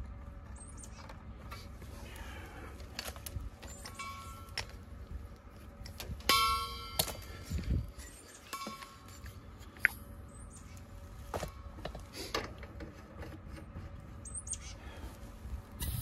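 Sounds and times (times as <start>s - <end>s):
ringing metal clang: 3.8s - 4.7s, 6.2s - 7.5s, 8.4s - 9.3s.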